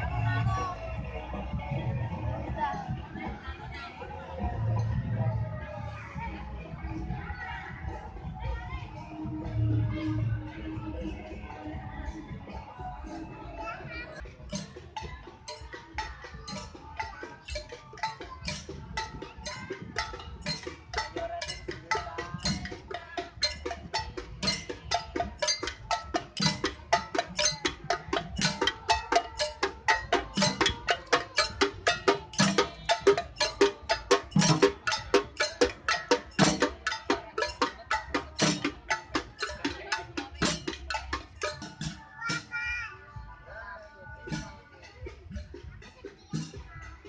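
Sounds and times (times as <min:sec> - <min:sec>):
hand drums and metal pans struck: 0:14.1 - 0:42.8, 0:44.2 - 0:47.0.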